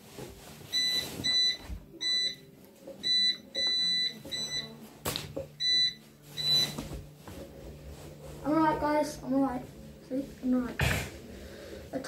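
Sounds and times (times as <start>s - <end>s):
high warning beeps: 0.8s - 4.7s, 5.6s - 6.8s.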